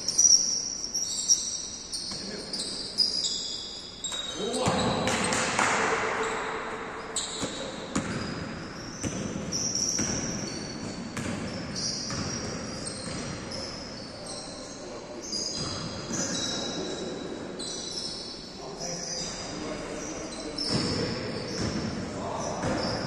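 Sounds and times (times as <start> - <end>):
sneakers squeaking on floor: 0.0 - 23.0
basketball bouncing: 4.6 - 5.9, 7.3 - 13.6, 20.7 - 21.9.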